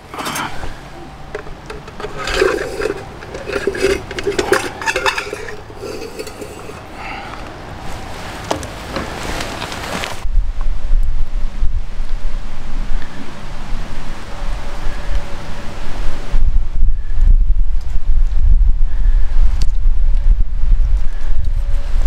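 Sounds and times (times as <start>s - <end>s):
knife scraping tin can: 0.0s - 6.9s.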